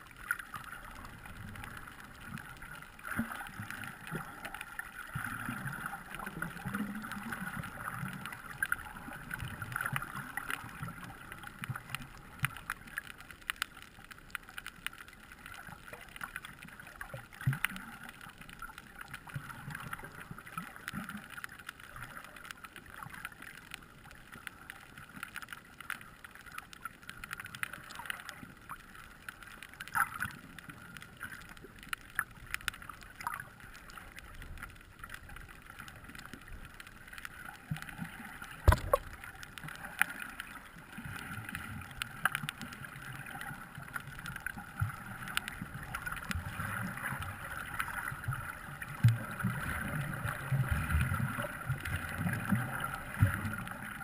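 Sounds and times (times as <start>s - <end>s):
muffled underwater water noise: 0.0s - 54.0s
small clicks and crackles: 0.0s - 54.0s
low sloshing rumbles: 38.7s - 39.2s.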